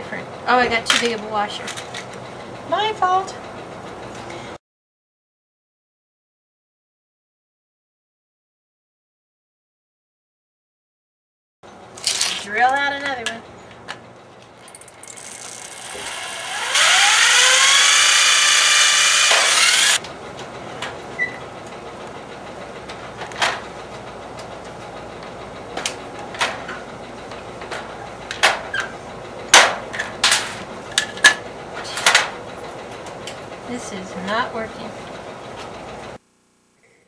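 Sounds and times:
electric drill whining: 15.1s - 20.0s.

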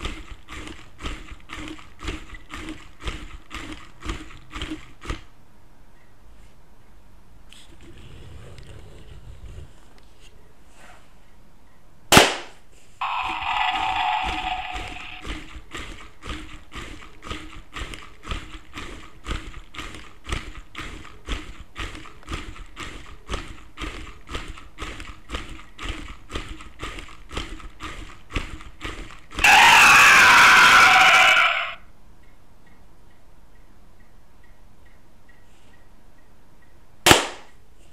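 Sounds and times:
small battery motor humming: 0.0s - 5.3s, 13.0s - 31.8s
gears and wooden feet clacking: 0.0s - 5.4s, 13.0s - 34.2s
toy roar sound effect: 13.0s - 16.1s, 28.9s - 31.9s.

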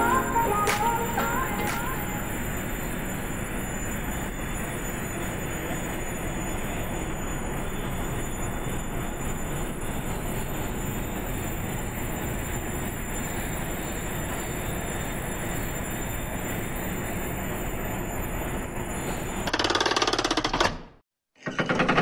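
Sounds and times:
faint high whines: 0.0s - 19.5s
engine-room machinery running: 0.0s - 20.7s.

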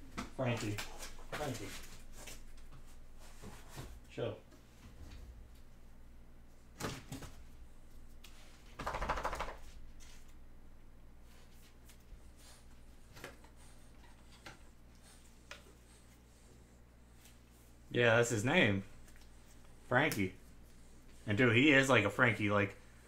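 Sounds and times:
low steady hum: 9.5s - 23.0s.

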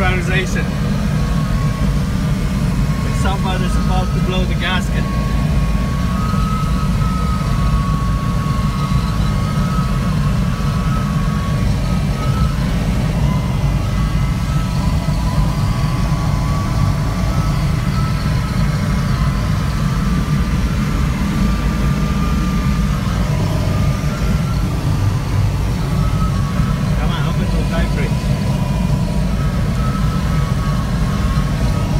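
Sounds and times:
faint steady high tone: 0.0s - 31.9s
airflow rushing over canopy: 9.6s - 31.9s.

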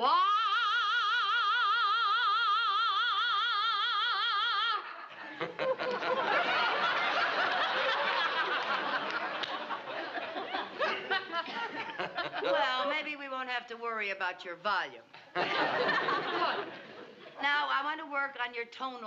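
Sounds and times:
studio audience laughter: 4.8s - 12.7s, 15.3s - 17.4s.

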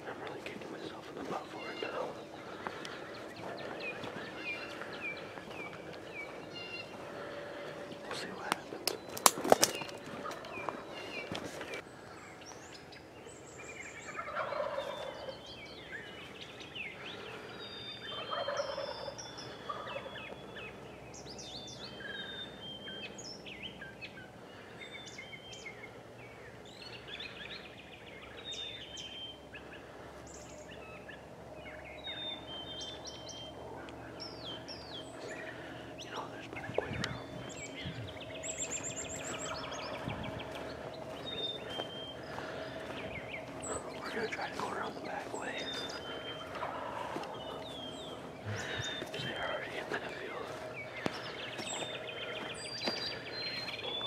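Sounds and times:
songbirds chirping: 0.0s - 54.0s
turkey gobbling: 14.0s - 15.4s, 18.1s - 19.1s, 19.7s - 20.1s, 46.1s - 49.1s.

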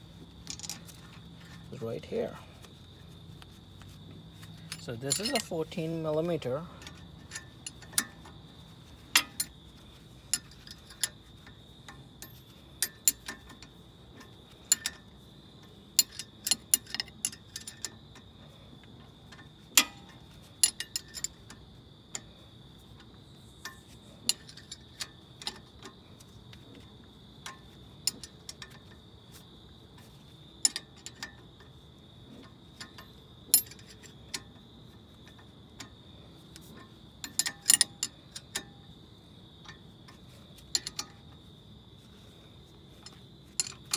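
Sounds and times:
hand ratchet clicking: 36.6s - 38.8s.

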